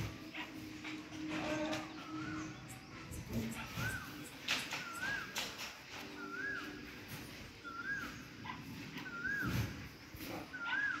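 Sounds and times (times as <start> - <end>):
animal whistled call: 3.4 - 6.9, 7.6 - 11.0.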